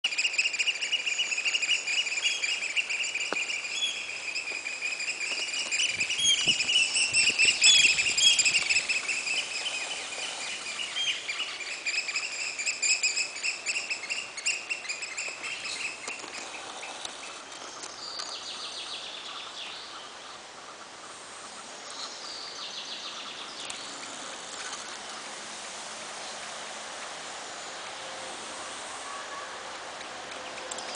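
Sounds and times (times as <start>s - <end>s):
shorebirds piping: 0.1s - 18.4s.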